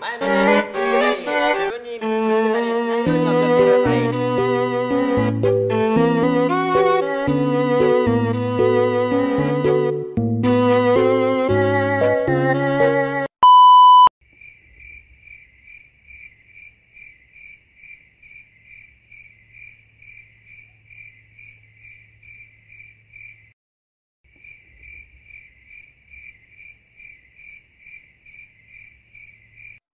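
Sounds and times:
bowed string music: 0.1 - 13.1
loud single-pitch beep: 13.4 - 14.1
crickets chirping: 14.4 - 23.6, 24.3 - 29.8.

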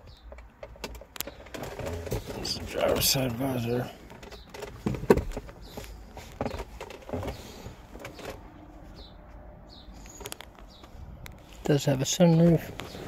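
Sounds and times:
sun visor clicks and knocks: 4.1 - 8.4.

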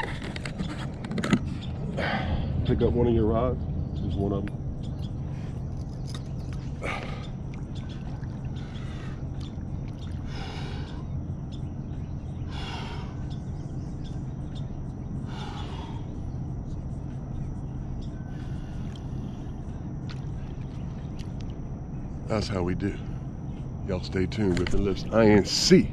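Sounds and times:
steady low hum: 0.0 - 25.9
man breathing heavily: 1.7 - 2.7, 6.7 - 7.5, 8.5 - 9.4, 10.1 - 14.3, 15.0 - 17.1, 17.7 - 20.0.

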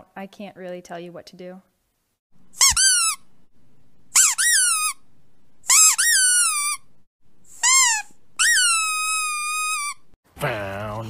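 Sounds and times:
squeaky dog toy squeaking: 2.6 - 3.3, 4.1 - 5.0, 5.6 - 6.9, 7.5 - 10.1.

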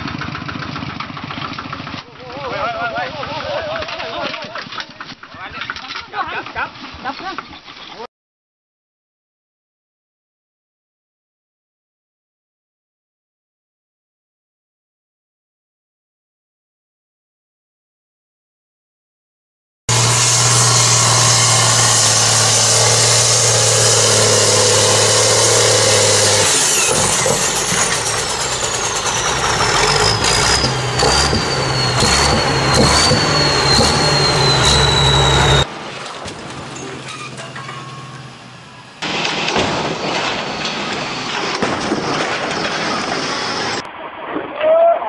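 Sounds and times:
tractor engine drone: 0.0 - 5.7, 19.9 - 43.9.

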